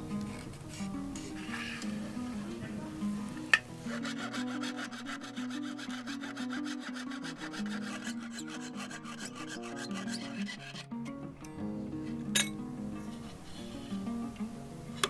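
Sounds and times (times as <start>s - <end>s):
background music: 0.0s - 15.0s
fine saw cutting metal sheet: 3.8s - 10.9s.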